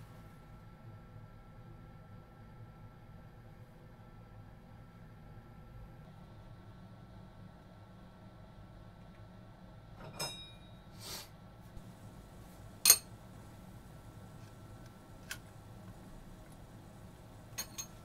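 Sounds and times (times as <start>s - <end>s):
low steady hum: 0.0s - 18.0s
metal tools clinking: 12.8s - 13.1s, 17.5s - 18.0s.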